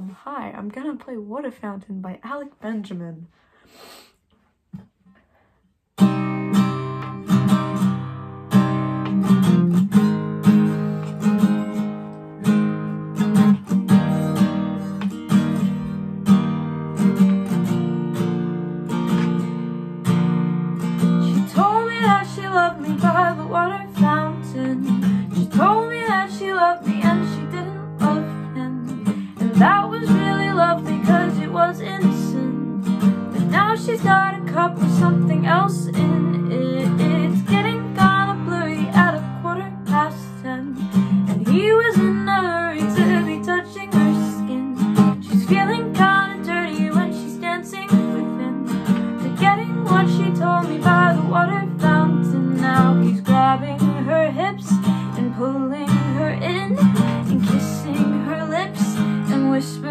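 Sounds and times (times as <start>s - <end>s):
acoustic guitar strummed chords: 6.0s - 59.9s
person singing: 21.3s - 32.8s, 33.4s - 59.9s.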